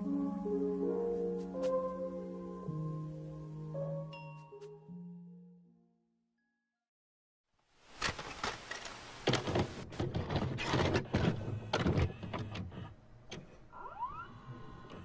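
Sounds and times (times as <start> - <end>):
steady hiss: 7.6 - 9.8.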